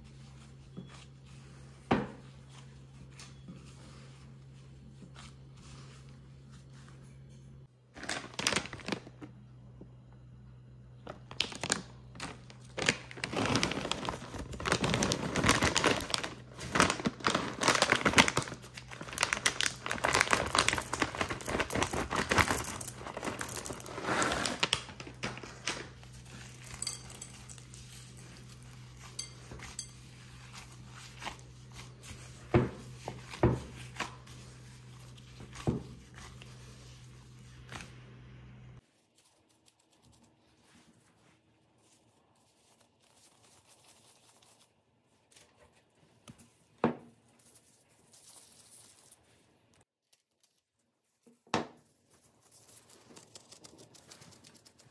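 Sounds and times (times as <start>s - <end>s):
plastic bag crinkling: 7.9s - 9.3s, 11.1s - 29.3s
chips being poured: 19.3s - 24.7s.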